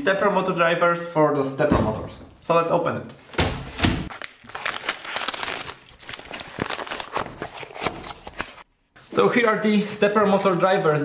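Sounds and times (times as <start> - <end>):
plastic bag crinkling: 4.1 - 8.6.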